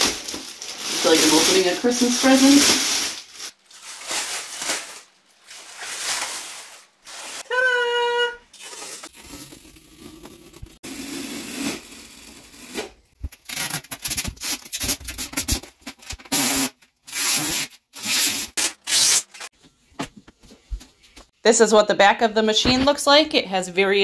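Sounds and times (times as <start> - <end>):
plastic film peeling and crackling: 0.0 - 7.5, 11.5 - 16.6.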